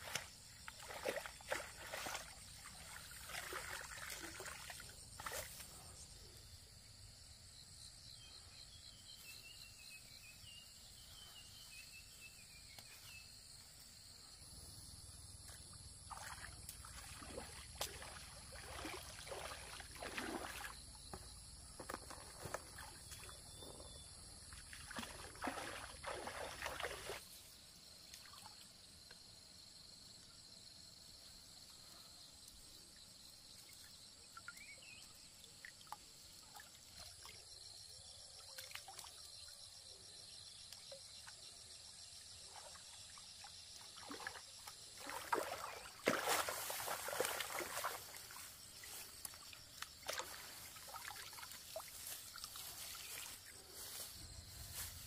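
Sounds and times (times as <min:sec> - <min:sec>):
water splashing and sloshing: 0:00.0 - 0:06.0, 0:15.4 - 0:27.4, 0:42.2 - 0:55.0
shrill of insects: 0:37.4 - 0:55.0.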